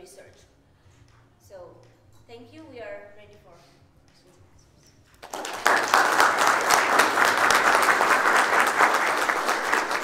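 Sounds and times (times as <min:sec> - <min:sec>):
audience applauding: 0:05.2 - 0:10.0.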